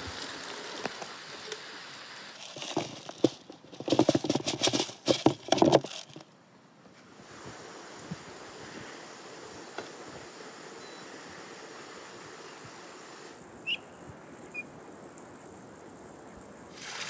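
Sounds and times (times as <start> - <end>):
grain pattering onto wood: 0.0 - 6.3, 13.3 - 17.0.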